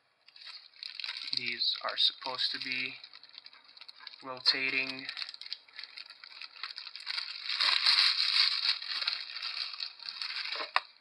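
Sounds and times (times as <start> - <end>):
plastic bag crinkling: 0.3 - 11.0.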